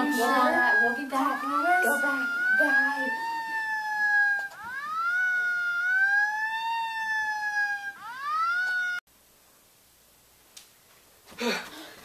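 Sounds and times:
police siren wailing: 0.0 - 9.0.

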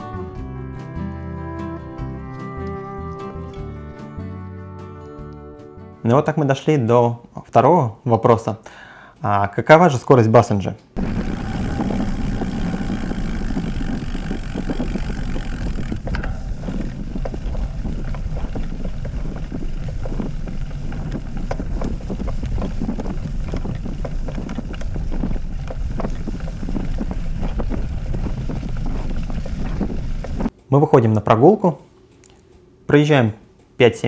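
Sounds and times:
wind buffeting microphone: 11.0 - 30.5.

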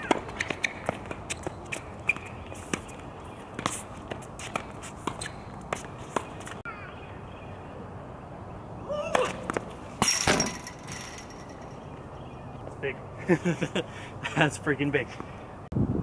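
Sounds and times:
footsteps and shoe scuffs: 0.0 - 6.6
tennis ball bouncing: 0.0 - 6.6, 9.1 - 11.6
racket hitting tennis ball: 9.0 - 11.6.

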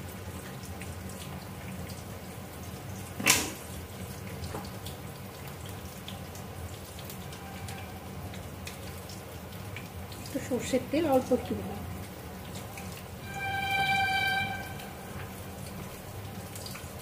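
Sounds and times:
low hum: 13.2 - 16.0.

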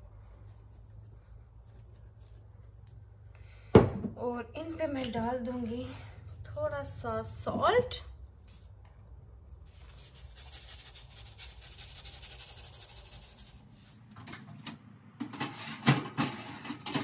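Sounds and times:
salt grains rattling from shaker: 9.7 - 13.7.

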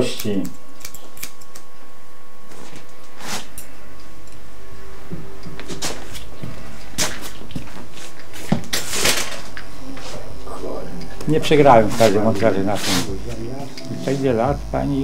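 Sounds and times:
scissors and comb clicking: 0.0 - 1.7, 13.7 - 13.9
faint steady hum: 0.0 - 15.0.

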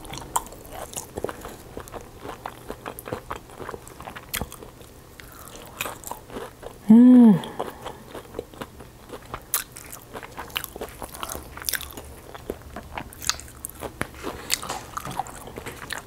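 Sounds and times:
crunching and chewing fried chicken: 0.0 - 6.8, 7.4 - 16.0
person humming mmm: 6.8 - 8.1.

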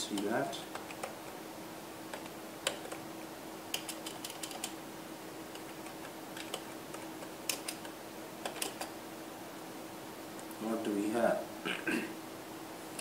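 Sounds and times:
faint steady hum: 0.0 - 13.0
keyboard key clicks: 5.5 - 8.9.

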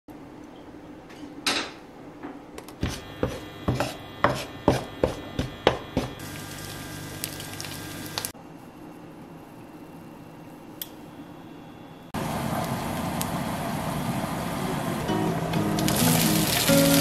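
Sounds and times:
oil sizzling in frying pan: 6.2 - 8.3, 15.6 - 17.0.

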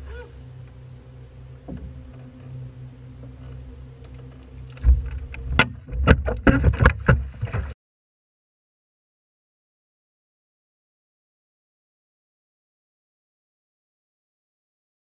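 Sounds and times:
low hum: 0.0 - 7.8
knocks and thumps on boat deck: 1.6 - 2.4, 4.8 - 7.8.

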